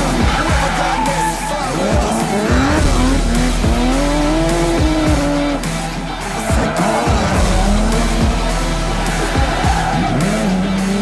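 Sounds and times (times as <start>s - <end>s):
background music: 0.0s - 11.0s
car engines revving: 0.0s - 11.0s.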